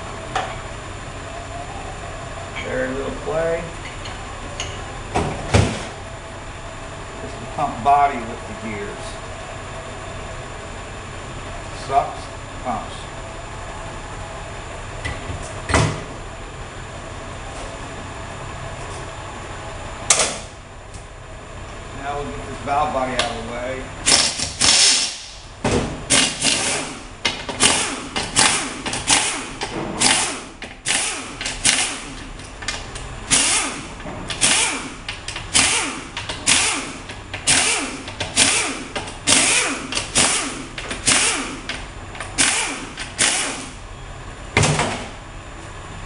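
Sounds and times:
pneumatic wrench bursts: 24.0s - 25.3s, 26.1s - 27.0s, 27.6s - 32.2s, 33.3s - 41.7s, 42.3s - 43.8s.

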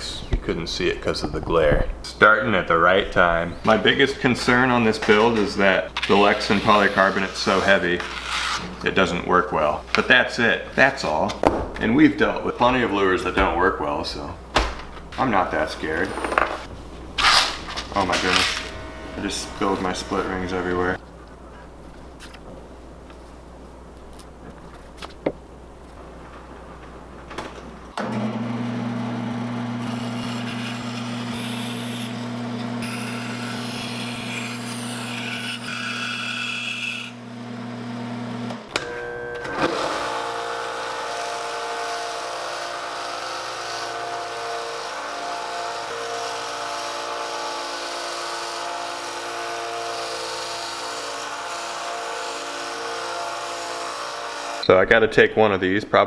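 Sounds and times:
power saw cutting plastic sheet: 6.0s - 8.8s, 17.2s - 21.0s, 29.8s - 37.5s, 38.5s - 54.6s.

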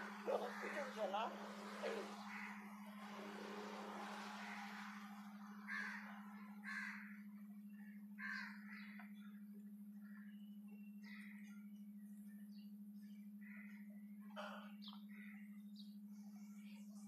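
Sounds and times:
crows cawing: 0.0s - 9.4s, 11.0s - 11.5s, 13.4s - 15.5s
steady low hum: 0.0s - 17.0s.

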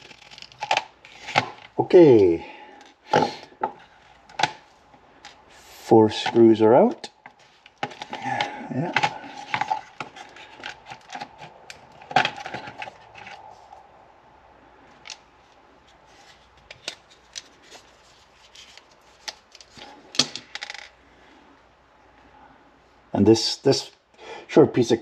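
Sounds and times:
parts clattering: 6.1s - 13.8s, 14.9s - 21.0s.

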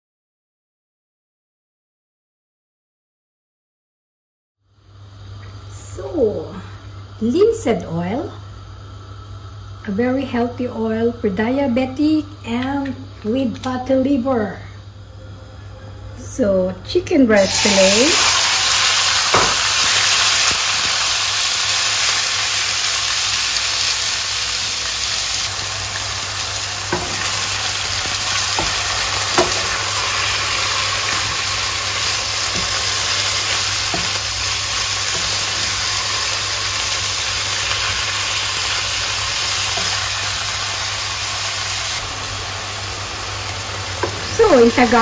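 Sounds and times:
chicken sizzling in oil: 17.4s - 45.0s.

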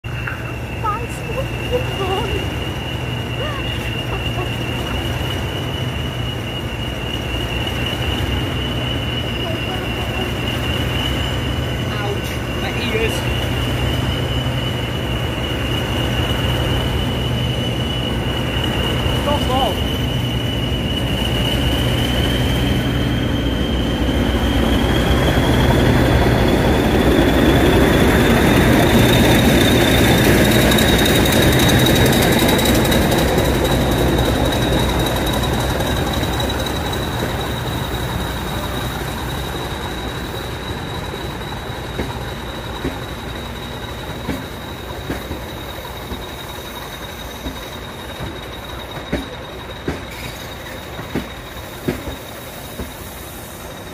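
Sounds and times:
diesel locomotive engine hum: 0.0s - 53.9s
wheel flange squeal: 0.1s - 53.9s
train wheel clicks: 24.8s - 53.9s.

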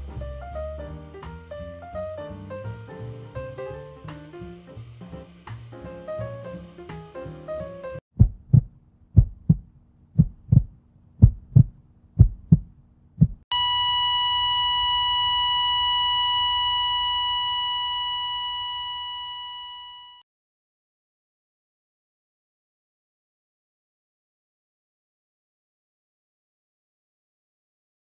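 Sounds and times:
heartbeat thumps: 8.1s - 13.4s
steady high-pitched beep: 13.5s - 20.2s.

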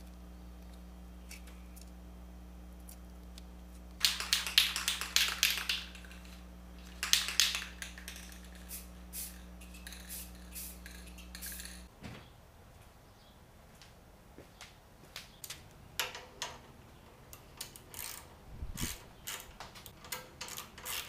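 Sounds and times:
spray can rattling when shaken: 4.0s - 11.9s.

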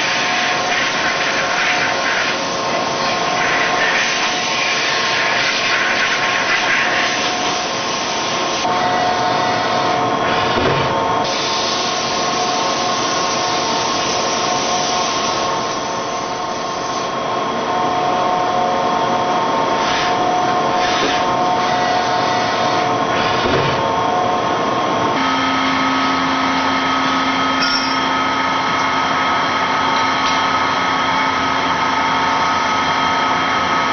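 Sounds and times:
cutting and coolant hiss: 0.0s - 10.6s, 11.2s - 17.2s
mill spindle whine: 0.0s - 33.9s.

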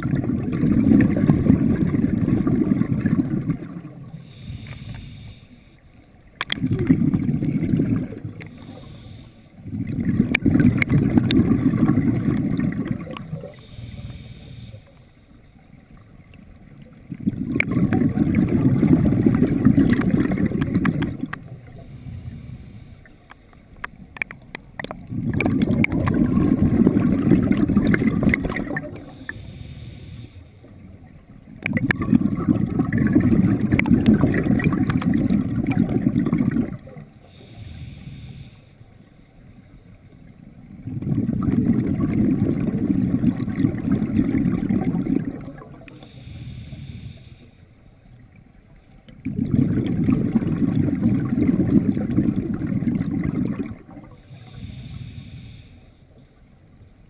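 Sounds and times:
bubbles rushing from regulator: 0.0s - 4.2s, 6.4s - 8.8s, 9.6s - 13.6s, 16.8s - 21.8s, 24.2s - 29.3s, 31.5s - 37.1s, 40.6s - 46.0s, 49.1s - 54.2s
faint clicks: 3.5s - 6.7s, 13.0s - 17.0s, 19.9s - 22.0s, 22.9s - 26.2s, 45.3s - 46.4s
diver inhaling: 4.2s - 5.9s, 8.5s - 9.7s, 13.4s - 15.7s, 21.7s - 23.2s, 29.0s - 30.7s, 37.2s - 39.4s, 45.9s - 48.0s, 54.1s - 56.4s.

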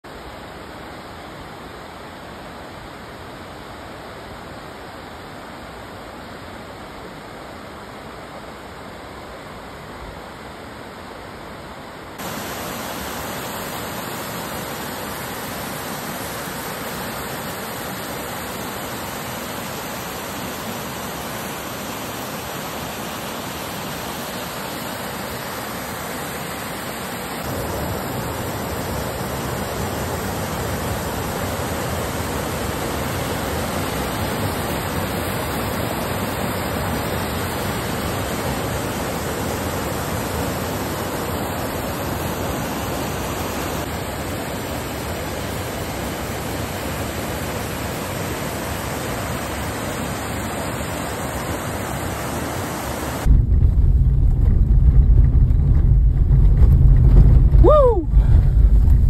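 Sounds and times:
stream cascading over rocks: 12.2s - 53.4s.

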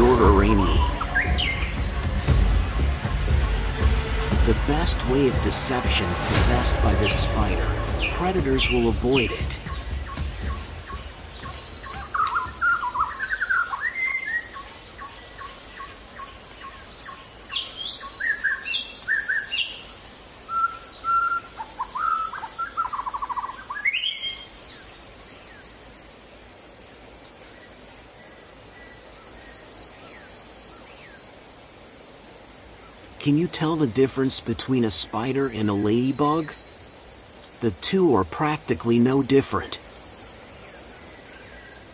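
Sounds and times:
birds chirping and singing: 0.0s - 24.9s
high insect drone: 0.0s - 41.9s.

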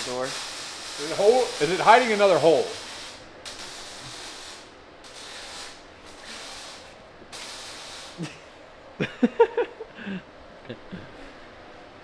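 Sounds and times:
hissing spray bursts: 0.0s - 8.4s.

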